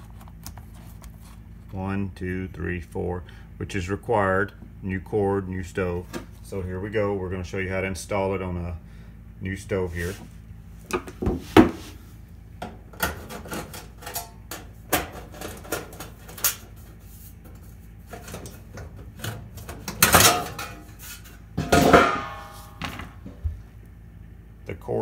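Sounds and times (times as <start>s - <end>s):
metal parts clicking and rattling: 19.2s - 22.1s
ringing metal clanks: 21.6s - 23.0s.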